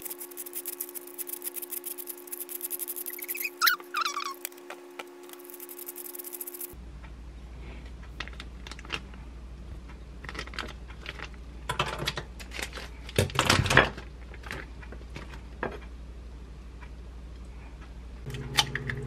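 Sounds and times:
scissors cutting: 0.0 - 6.8.

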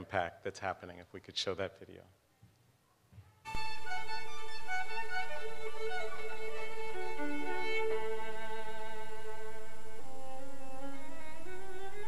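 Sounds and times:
violin music: 3.5 - 12.0.

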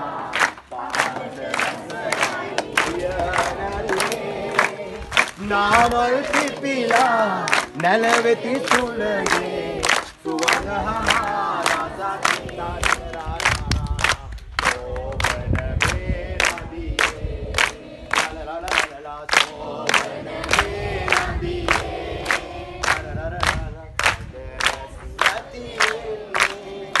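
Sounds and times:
children singing together: 0.0 - 5.2
hands clapping in time: 0.3 - 27.0.

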